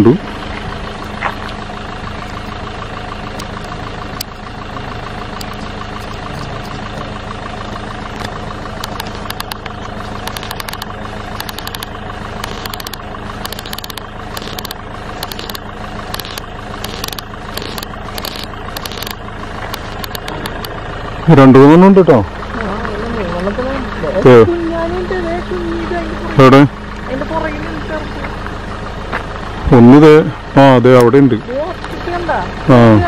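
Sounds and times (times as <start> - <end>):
car engine running: 0.0 - 33.0
sharp clicks: 5.4 - 6.8, 8.1 - 20.8.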